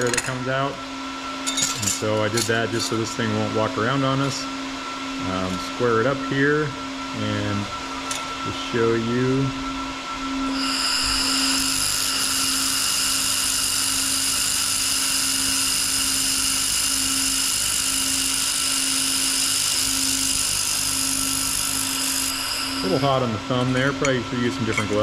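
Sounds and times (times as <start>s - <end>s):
laser welder whining: 0.0s - 4.5s, 5.2s - 25.0s
pulsing low hum: 4.5s - 23.6s.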